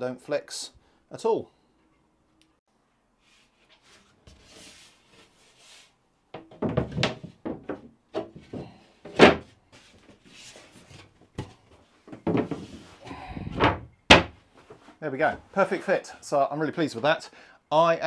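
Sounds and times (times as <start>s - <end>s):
hollow wooden knocks: 6.3s - 9.5s, 11.4s - 12.8s, 13.4s - 14.4s.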